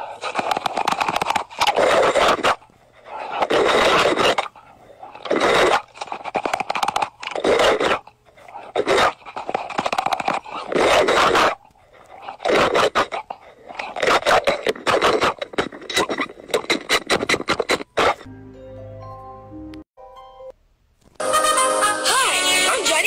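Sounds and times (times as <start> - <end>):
crunching and chewing crisp food: 0.0 - 18.3.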